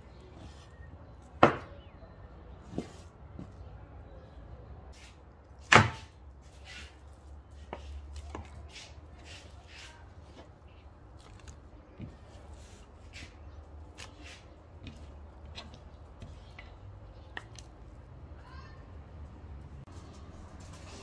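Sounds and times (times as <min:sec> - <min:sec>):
hands scraping and rustling: 0:02.6 - 0:03.7, 0:04.9 - 0:18.0.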